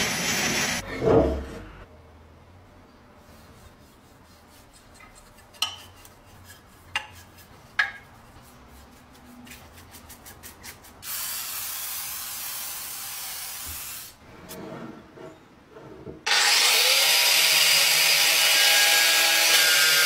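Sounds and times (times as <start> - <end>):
brush scrubbing metal: 3.2 - 11.0
brush tapping metal: 4.4 - 11.0
oil spray hissing: 11.0 - 14.2.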